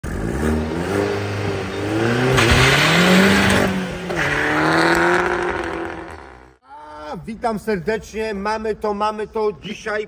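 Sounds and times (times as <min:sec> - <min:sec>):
car engine accelerating hard: 0:00.0 - 0:06.5.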